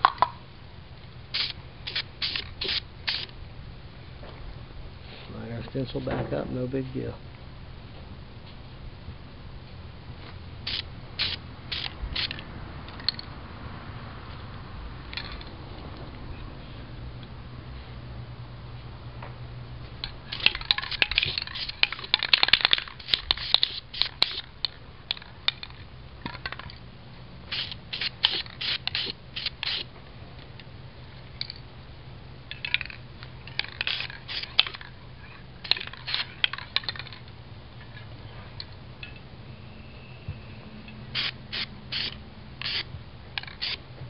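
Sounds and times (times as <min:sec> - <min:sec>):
spray-paint can spraying bursts: 0:01.3 - 0:03.3, 0:10.6 - 0:12.4, 0:20.3 - 0:24.4, 0:27.5 - 0:29.9, 0:33.6 - 0:34.8, 0:35.6 - 0:36.3, 0:41.1 - 0:43.8.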